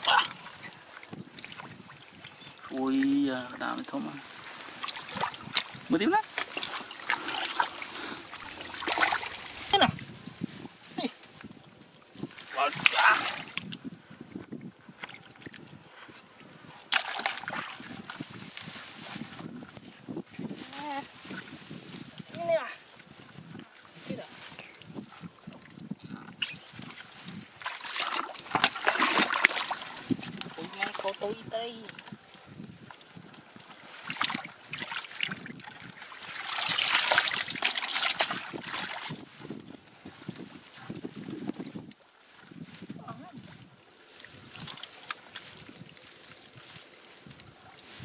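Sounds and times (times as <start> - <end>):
hand splashing in muddy water: 4.2 - 10.2, 12.3 - 13.8, 16.9 - 19.4, 26.4 - 32.2, 33.2 - 39.4
loud water splash: 4.3 - 10.0, 12.5 - 13.6, 27.6 - 31.0, 36.1 - 39.2.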